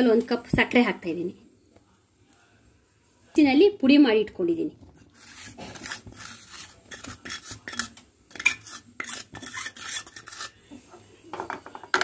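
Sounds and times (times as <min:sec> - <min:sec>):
wooden spatula scraping pan: 0:05.0 - 0:11.0.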